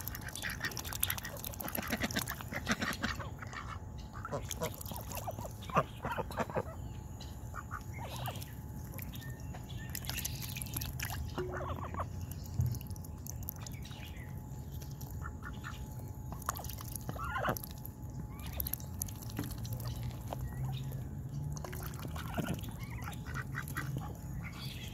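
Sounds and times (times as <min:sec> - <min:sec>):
ducks quacking: 0:00.0 - 0:06.8, 0:07.5 - 0:09.0, 0:11.3 - 0:12.1, 0:17.1 - 0:17.6, 0:21.7 - 0:24.9.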